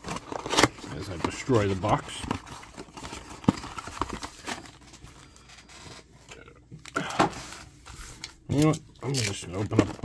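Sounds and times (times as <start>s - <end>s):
cardboard box tearing: 0.0s - 2.0s
foil packs rustling and crinkling: 0.0s - 6.3s, 7.0s - 10.0s.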